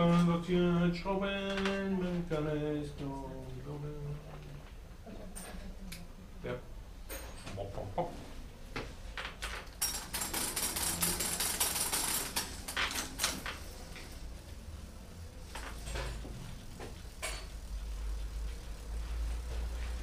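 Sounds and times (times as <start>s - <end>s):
metal clicks and rattles on bike: 9.2s - 14.1s.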